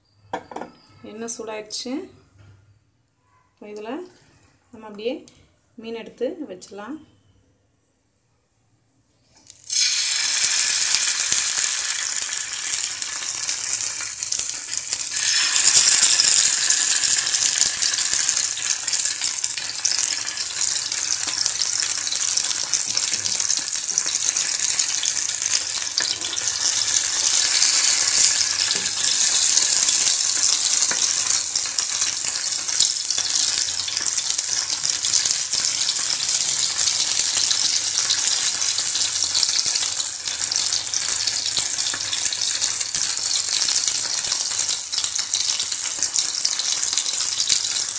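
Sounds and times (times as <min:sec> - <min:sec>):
fish sizzling in hot oil: 0:09.4 - 0:47.9.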